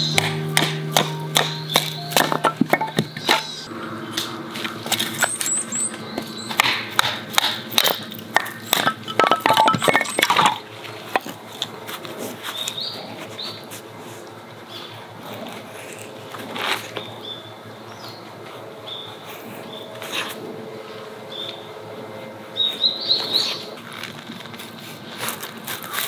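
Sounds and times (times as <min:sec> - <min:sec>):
wood sticks clinking: 0:00.0 - 0:03.7, 0:06.6 - 0:11.3
hatchet knocking and wood splitting: 0:00.1 - 0:03.6, 0:06.5 - 0:10.5
knife shaving wood: 0:24.0 - 0:26.0.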